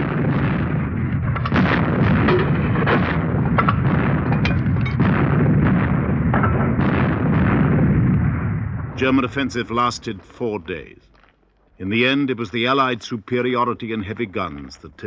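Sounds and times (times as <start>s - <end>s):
sharp gunshot cracks: 0.0s - 9.5s
gunfire and artillery fire: 0.0s - 11.5s.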